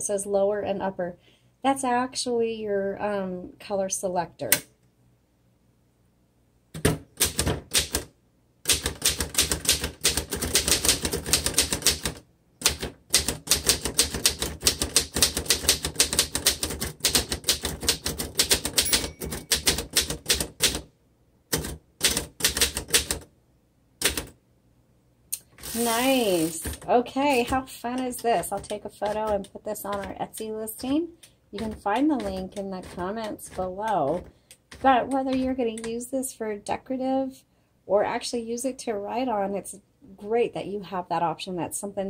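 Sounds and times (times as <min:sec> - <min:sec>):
manual typewriter typing: 0:06.8 - 0:20.9, 0:21.5 - 0:23.3, 0:24.0 - 0:24.4, 0:25.4 - 0:36.0.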